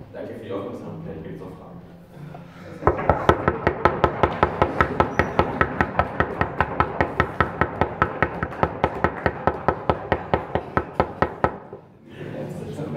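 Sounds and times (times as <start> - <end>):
knocking on wooden desks: 2.8 - 11.8.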